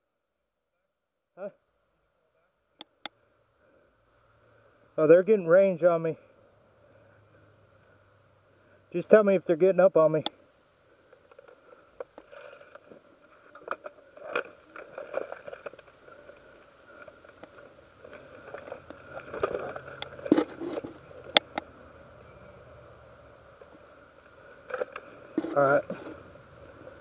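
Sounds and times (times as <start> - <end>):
faint low hum: 0.0 - 27.0
rustling and scraping: 11.1 - 21.5, 24.5 - 27.0.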